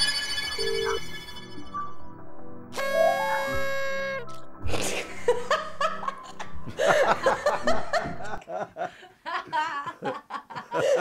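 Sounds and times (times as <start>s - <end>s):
people laughing: 4.7s - 11.0s.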